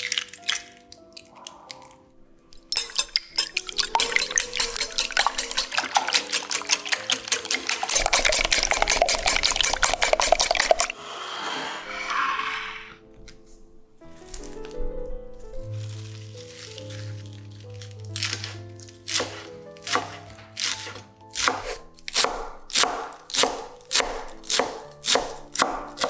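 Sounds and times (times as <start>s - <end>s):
soft background music: 0.0s - 11.0s, 11.8s - 26.0s
whisk beating eggs in glass bowl: 2.7s - 11.0s.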